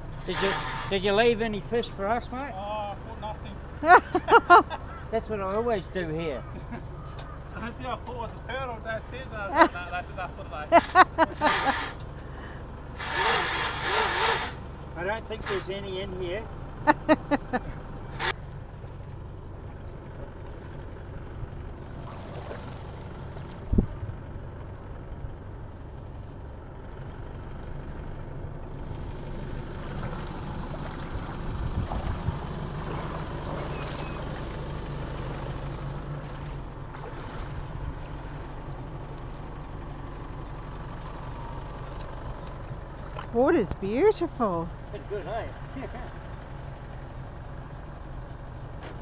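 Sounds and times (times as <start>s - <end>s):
engine idling: 0.0s - 49.0s
person wading through water: 18.8s - 23.9s, 29.7s - 39.8s.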